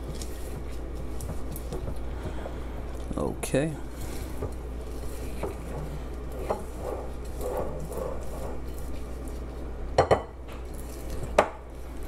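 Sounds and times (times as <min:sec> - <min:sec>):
spatula swishing batter: 0:04.0 - 0:09.8.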